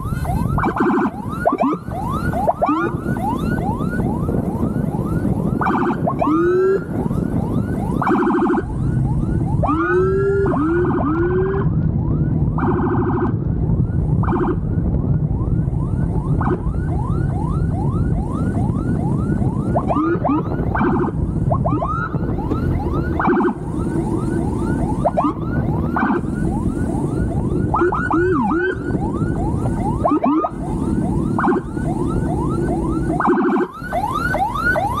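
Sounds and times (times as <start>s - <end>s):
electronic siren whooping: 0.0s - 35.0s
wind noise: 0.0s - 35.0s.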